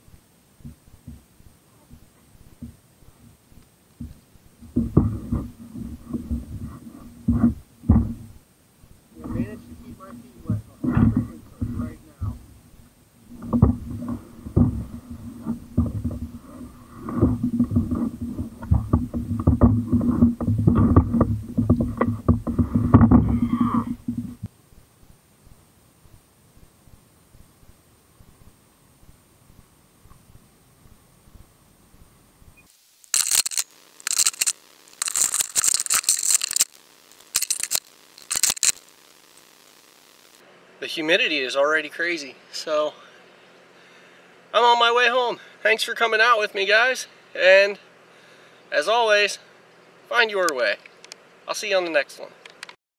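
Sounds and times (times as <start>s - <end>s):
thumps and knocks in plastic kayak: 4.0s - 8.3s, 13.4s - 24.5s
rustling and crunching: 13.2s - 24.5s, 32.7s - 40.4s.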